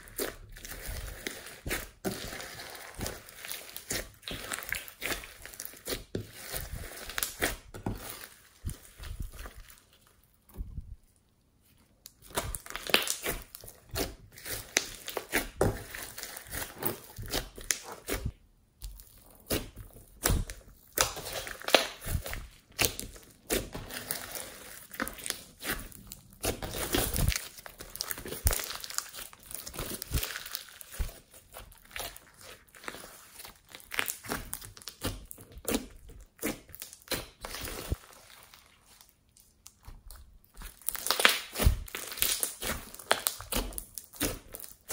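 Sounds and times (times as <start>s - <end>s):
slime crackling and clicking: 39.3s - 44.9s.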